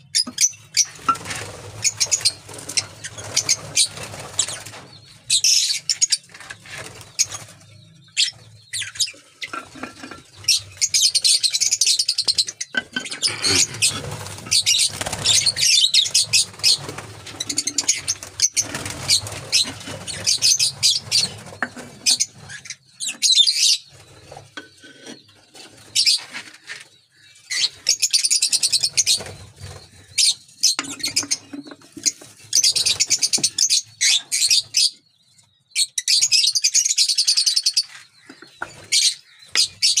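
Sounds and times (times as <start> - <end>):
lovebirds chirping: 0.0 - 40.0
rustling and knocking on clay pot: 9.4 - 10.6, 12.7 - 14.8, 21.6 - 22.2, 30.8 - 32.3.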